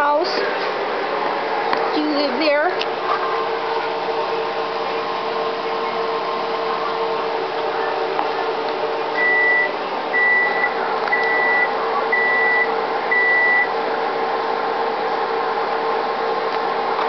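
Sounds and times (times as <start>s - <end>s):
steady background hum: 0.0s - 17.0s
electronic high beeps: 9.2s - 13.7s.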